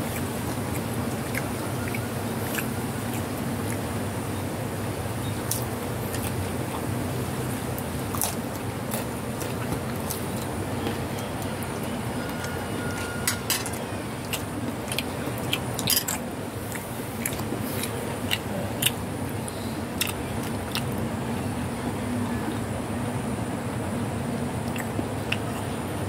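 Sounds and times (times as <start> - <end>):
cats chewing crunchy snack: 0.0 - 4.2, 5.4 - 21.1
steady background noise: 0.0 - 26.0.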